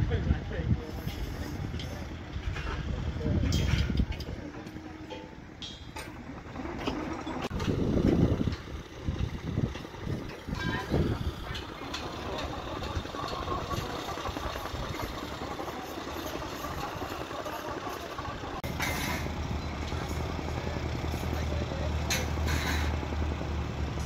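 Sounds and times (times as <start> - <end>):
engine idling: 0.0 - 24.0.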